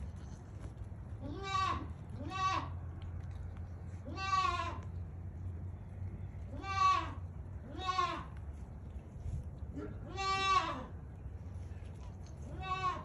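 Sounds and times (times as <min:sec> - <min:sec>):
baby goat bleating: 0:01.2 - 0:02.8, 0:04.0 - 0:04.9, 0:06.5 - 0:08.4, 0:09.8 - 0:11.0, 0:12.4 - 0:13.0.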